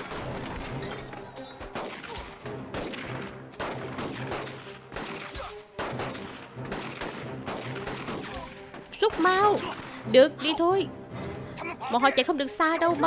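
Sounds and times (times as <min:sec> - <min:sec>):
gunshots: 0:00.0 - 0:00.8, 0:01.6 - 0:09.9
background music: 0:00.0 - 0:13.0.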